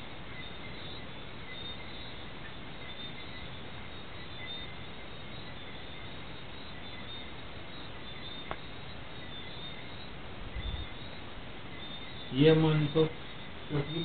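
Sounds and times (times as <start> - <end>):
faint high-pitched chirps: 0.0 - 14.0
steady background hiss: 0.0 - 14.0.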